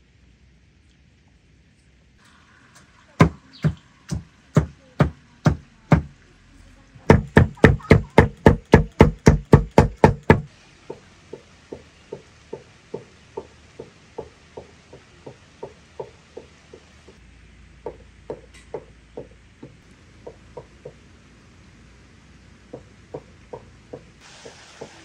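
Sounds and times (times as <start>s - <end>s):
soft rain: 0.0s - 25.0s
cleaver chopping meat on board: 7.1s - 10.5s.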